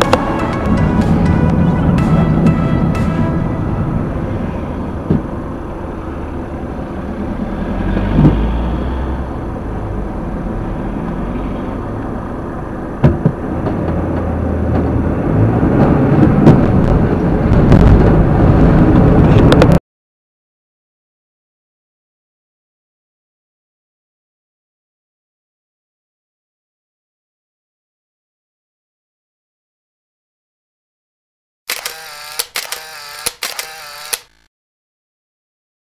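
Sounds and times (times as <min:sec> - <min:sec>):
engine and road rumble: 0:00.0 - 0:19.8, 0:31.7 - 0:34.5.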